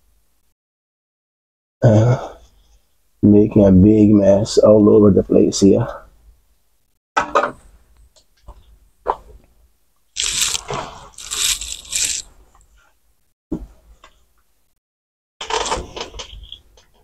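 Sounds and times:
tissue paper crinkling: 10.2s - 12.2s.

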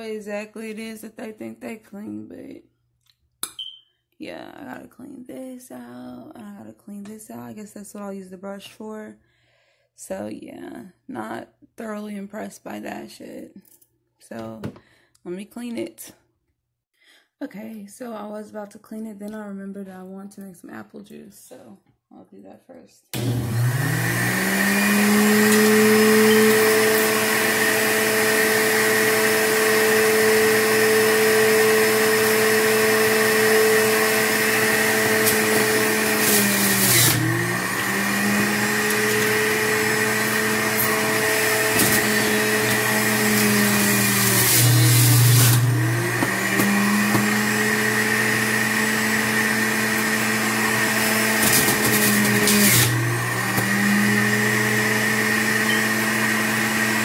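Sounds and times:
juicer motor whining: 23.2s - 57.0s.

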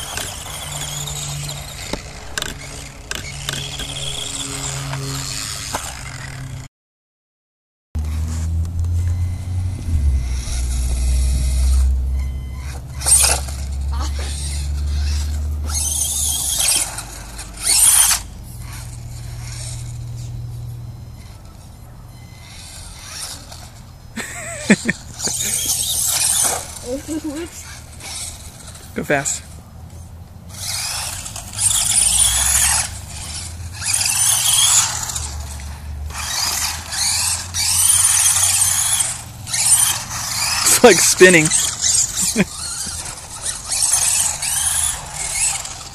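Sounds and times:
electric motor whining: 0.0s - 6.7s, 8.0s - 29.6s, 30.5s - 45.9s
low rumble: 1.4s - 6.7s.

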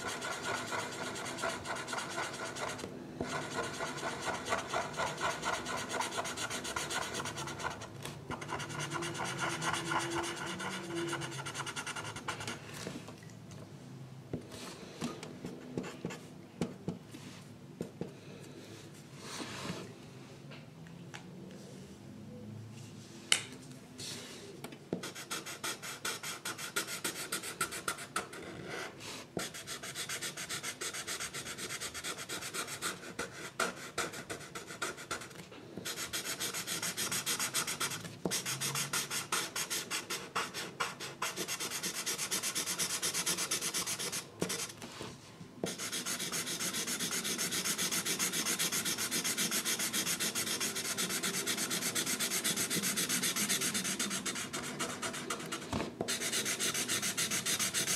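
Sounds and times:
drawing tool rubbing on paper: 0.0s - 12.4s, 45.7s - 57.9s.

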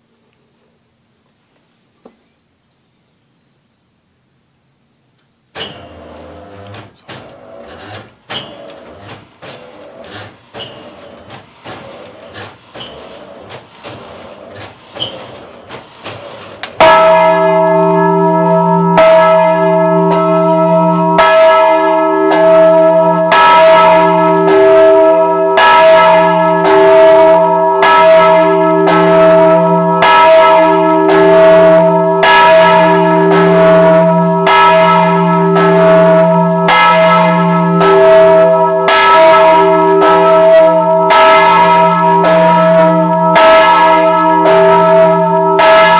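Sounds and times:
quiet knocks and clacks: 6.6s - 16.9s
church bell ringing: 16.8s - 45.9s.

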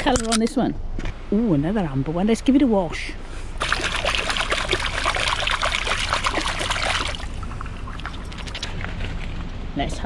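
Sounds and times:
water splashing and sloshing: 3.6s - 9.8s.

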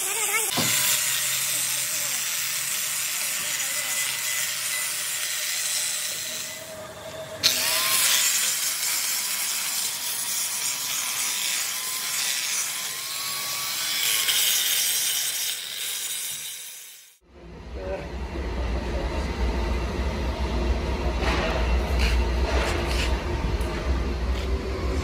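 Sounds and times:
angle grinder grinding metal: 0.0s - 17.2s.

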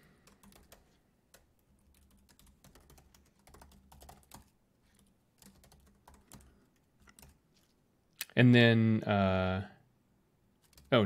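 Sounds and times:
typing on computer keyboard: 0.2s - 7.4s, 10.6s - 11.0s.

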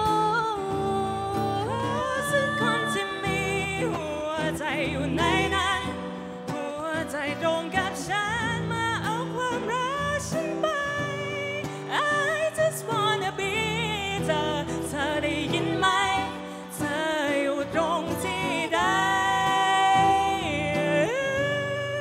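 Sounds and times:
strummed acoustic guitar: 0.0s - 22.0s
woman singing: 0.0s - 22.0s.

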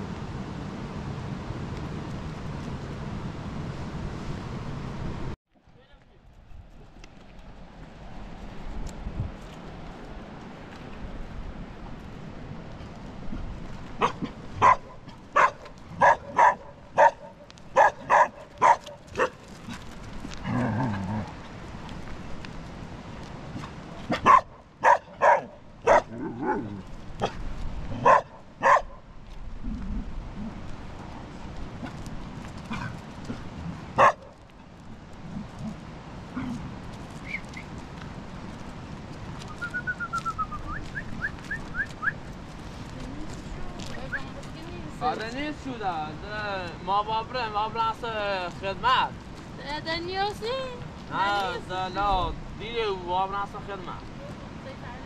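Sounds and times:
dog barking: 14.0s - 19.4s, 24.1s - 27.4s, 28.0s - 29.0s, 34.0s - 34.4s
bird chirping and whistling: 37.2s - 37.7s, 39.5s - 42.2s.

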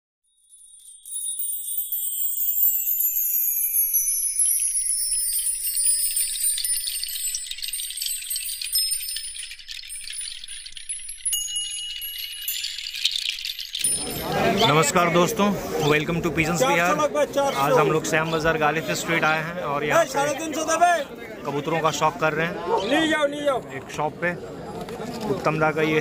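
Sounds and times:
shimmering tinkling chimes: 0.3s - 16.1s.

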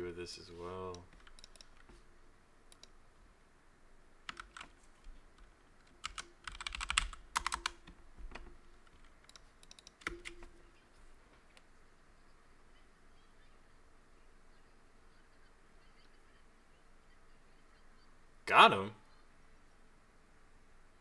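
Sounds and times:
typing on a computer keyboard: 1.0s - 1.9s, 4.3s - 4.8s, 5.9s - 10.5s.

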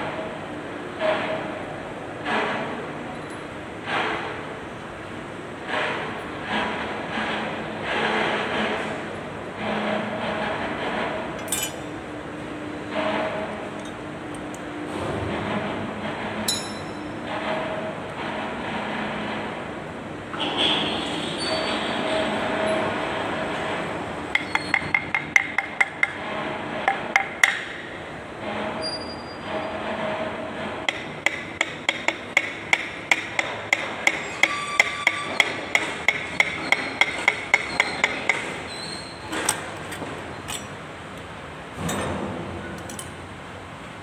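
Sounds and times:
separate knocks: 24.3s - 27.8s.

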